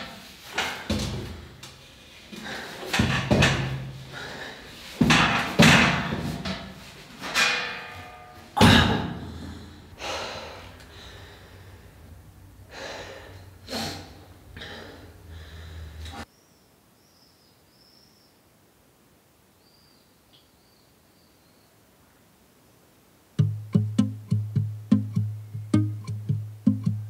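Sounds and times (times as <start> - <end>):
person breathing: 1.3 - 3.0, 3.8 - 5.0, 8.8 - 16.3.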